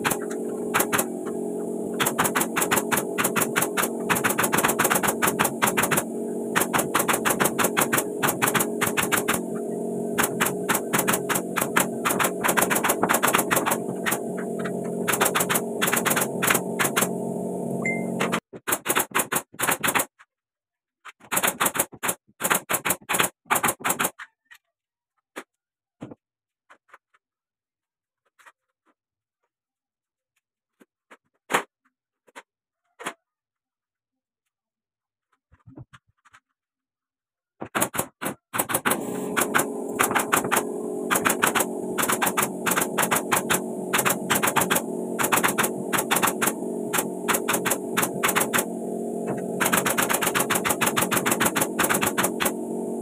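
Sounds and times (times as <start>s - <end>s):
nail gun firing into wood: 0.0s - 1.1s, 2.0s - 9.4s, 10.2s - 14.2s, 15.1s - 17.1s, 18.2s - 20.1s, 21.2s - 24.2s, 37.6s - 48.7s, 49.3s - 52.6s
steady hum: 0.0s - 18.4s, 38.8s - 53.0s.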